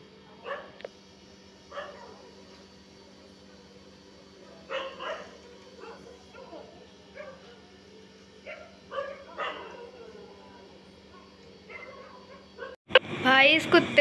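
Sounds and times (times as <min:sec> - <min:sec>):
dog barking: 0:00.4 - 0:00.8, 0:01.7 - 0:02.3, 0:04.6 - 0:07.6, 0:08.4 - 0:10.2, 0:11.1 - 0:12.8.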